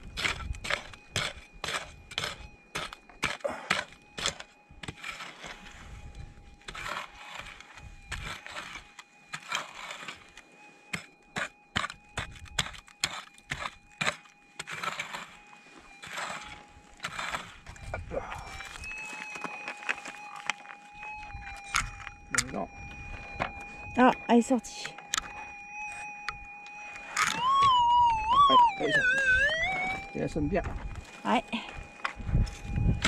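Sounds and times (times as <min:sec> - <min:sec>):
digging tool scraping stony soil: 0:00.0 - 0:20.6.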